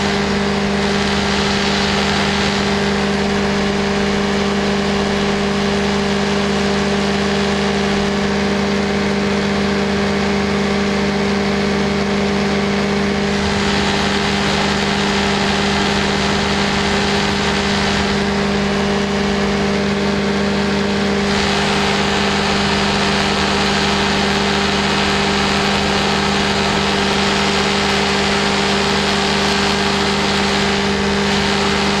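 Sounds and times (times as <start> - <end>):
light aircraft engine droning: 0.0 - 32.0.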